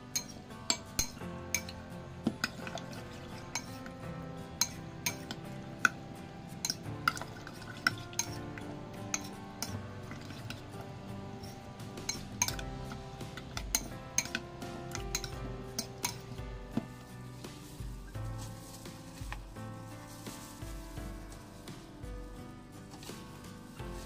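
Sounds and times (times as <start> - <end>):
soft background music: 0.0 - 24.0
metal spoon clinking bowl: 0.1 - 1.8, 2.4 - 3.8, 4.6 - 5.4, 6.6 - 8.4, 11.4 - 12.6, 13.3 - 16.3
spoon scraping bowl: 2.4 - 4.0, 6.6 - 17.9.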